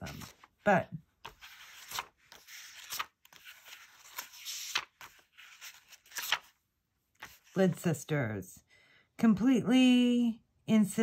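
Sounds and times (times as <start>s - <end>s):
book pages flipping: 0.0s - 6.6s, 7.2s - 7.6s.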